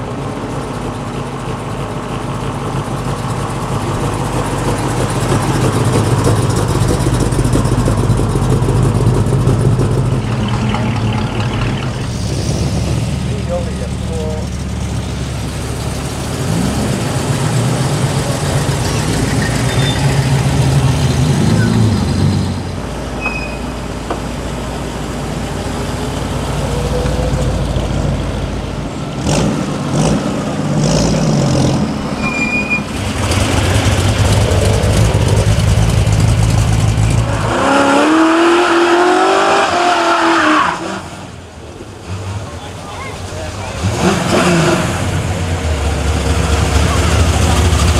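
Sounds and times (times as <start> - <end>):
car engine at high revs: 2.7 - 23.0, 24.1 - 32.2, 32.8 - 47.9
cars driving past revving: 3.7 - 47.9
tyres screeching: 18.7 - 23.9, 32.0 - 35.5.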